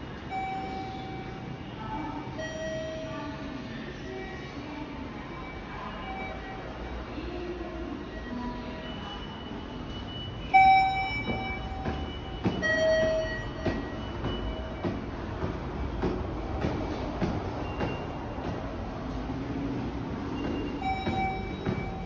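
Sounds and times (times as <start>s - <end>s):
footsteps on stone stairs: 11.0s - 22.0s.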